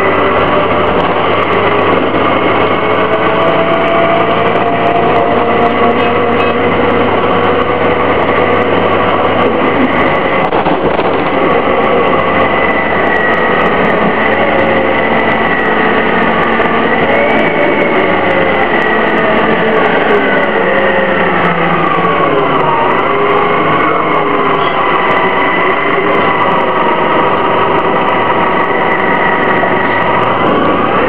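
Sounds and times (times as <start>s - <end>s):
bus engine drone: 0.0s - 31.0s.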